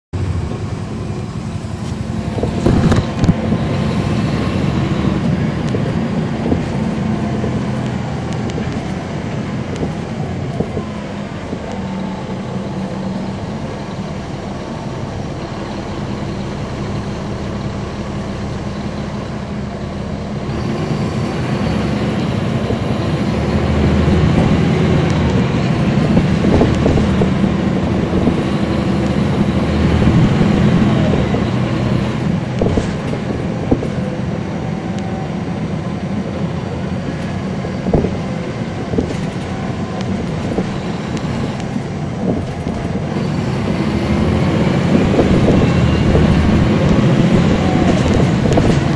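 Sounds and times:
bus engine humming: 0.1s - 48.9s.

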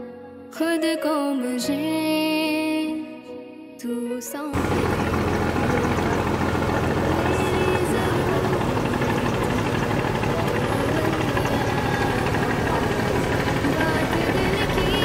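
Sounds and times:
boat engine humming: 4.6s - 15.0s
faint voices: 4.6s - 15.0s.

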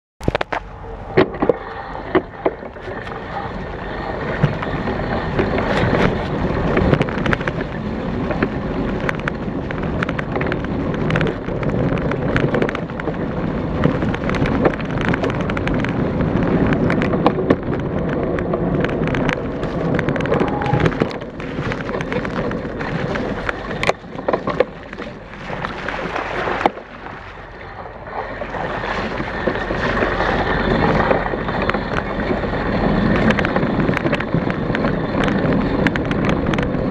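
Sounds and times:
bike rattling over bumps: 0.2s - 36.9s
wind rushing over microphone: 0.2s - 36.9s
tyres rolling over leaves and dirt: 1.2s - 36.9s.

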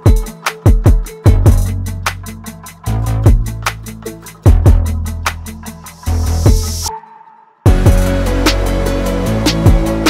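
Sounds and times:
hip-hop drum loop: 0.0s - 6.9s, 7.7s - 10.0s.

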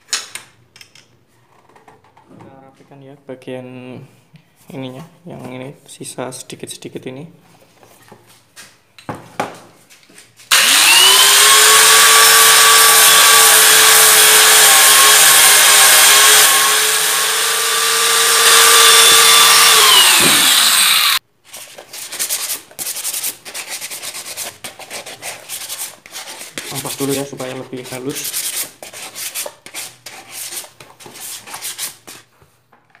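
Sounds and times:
scraping and handling noises: 0.2s - 2.9s, 7.4s - 10.5s
electric angle grinder whining: 10.5s - 21.2s.

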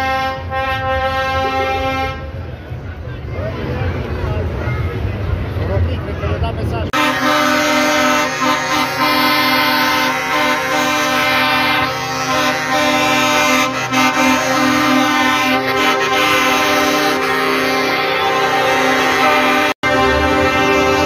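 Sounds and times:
truck air horns chord: 0.0s - 2.4s, 7.0s - 21.0s.

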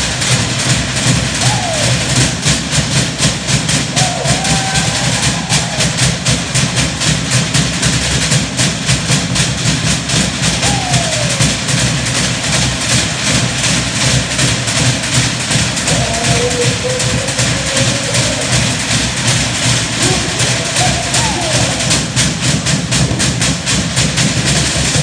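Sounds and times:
fast steady drumming: 0.0s - 25.0s
short falling calls: 15.9s - 22.5s.

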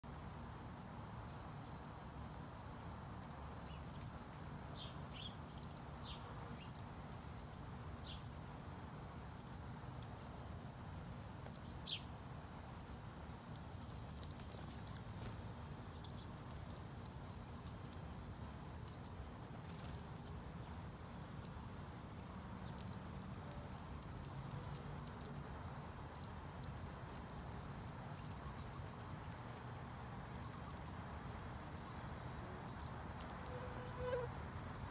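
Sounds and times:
insects chirping: 0.0s - 34.9s
faint bird chirps: 32.7s - 34.9s.

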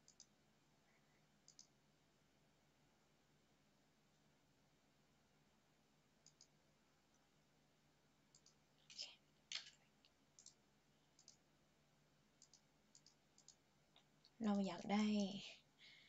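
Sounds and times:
computer mouse clicks: 0.0s - 0.4s, 1.4s - 1.8s, 6.2s - 6.6s, 8.3s - 10.6s, 11.2s - 11.4s, 12.4s - 13.6s.

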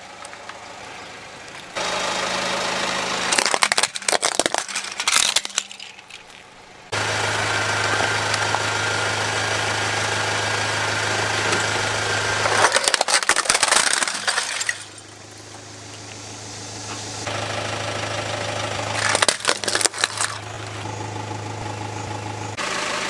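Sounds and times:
car engine idling: 0.0s - 23.0s
plastic toys cracking under tyre: 3.3s - 6.6s, 12.4s - 15.0s, 18.9s - 20.8s.

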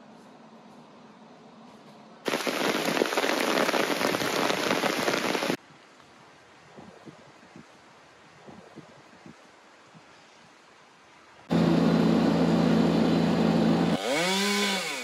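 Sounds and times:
heavy rain on gravel: 2.3s - 5.6s.

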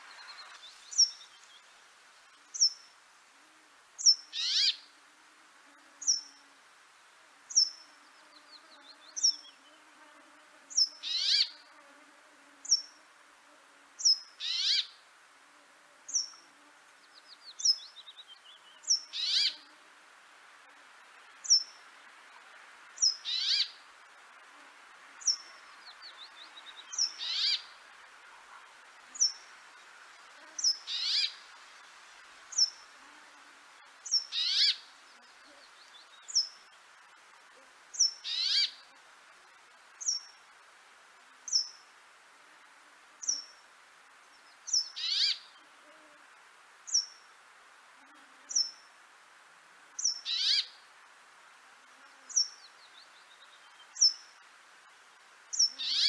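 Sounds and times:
faint twittering trills: 0.0s - 3.0s, 4.0s - 4.9s, 25.2s - 27.8s, 28.9s - 29.8s, 30.6s - 31.6s, 32.5s - 37.2s, 37.9s - 40.6s, 41.5s - 41.9s, 44.2s - 45.7s, 46.9s - 47.3s, 52.2s - 54.5s, 55.5s - 56.0s.

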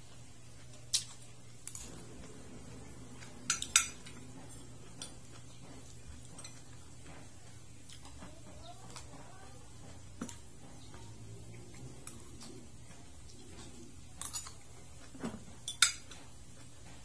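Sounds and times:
low steady hum: 0.0s - 17.0s
cutlery clinking on a plate: 3.3s - 7.3s, 13.6s - 16.4s.

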